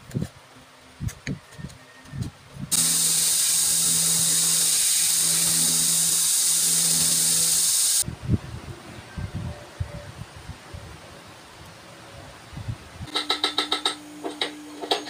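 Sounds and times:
belt grinder sanding wood: 2.7 - 8.0.

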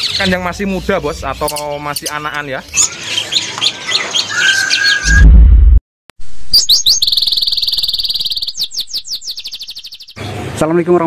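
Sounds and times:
songbirds chirping: 0.0 - 5.1, 6.5 - 10.4
loud low boom: 5.0 - 5.8
fast high-pitched bird trill: 6.5 - 10.2.

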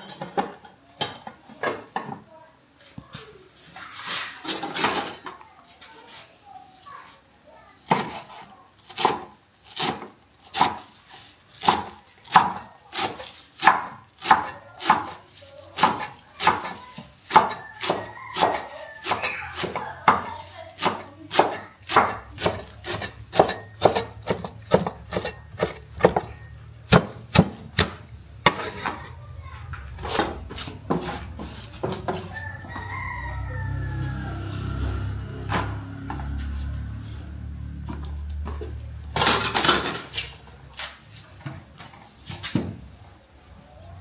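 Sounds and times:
knife chopping on wooden board: 7.9 - 8.2, 8.9 - 10.9, 11.6 - 15.2, 15.8 - 26.3, 26.9 - 29.0.

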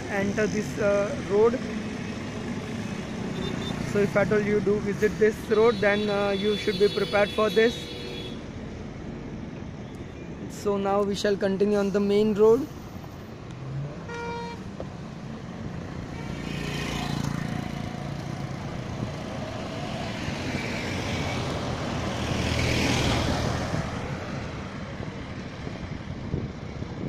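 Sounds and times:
road traffic: 0.0 - 27.0
car horn toot: 5.7 - 8.4, 14.1 - 14.6.

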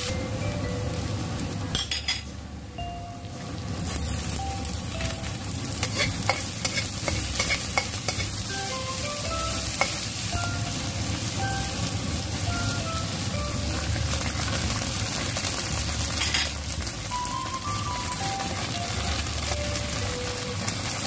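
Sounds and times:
vegetables sizzling in hot oil: 3.2 - 21.0
spatula scraping a wok: 5.8 - 8.4.

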